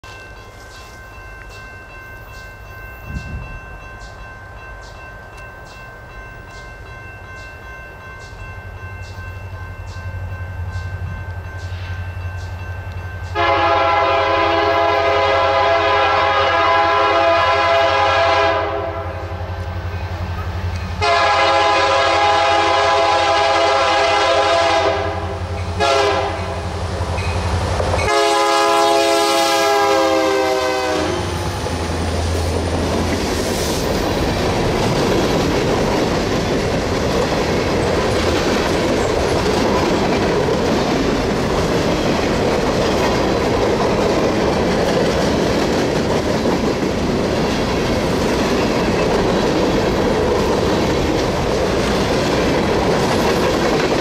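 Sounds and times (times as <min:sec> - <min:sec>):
locomotive engine and rail rumble: 0:00.0 - 0:54.0
train air horn blasts: 0:13.3 - 0:19.5, 0:21.0 - 0:26.8, 0:28.0 - 0:31.4.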